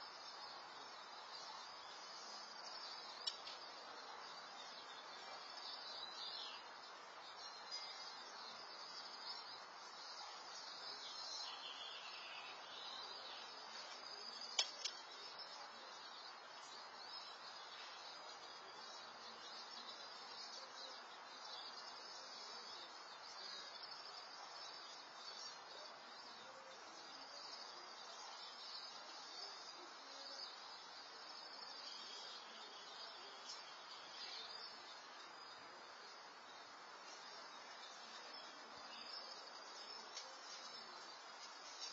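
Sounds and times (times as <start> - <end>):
sharp clicks: 3.2 - 3.6, 14.5 - 15.0.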